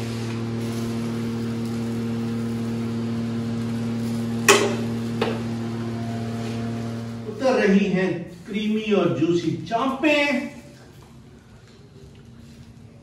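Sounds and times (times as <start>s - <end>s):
electric motor hum: 0.0s - 9.7s.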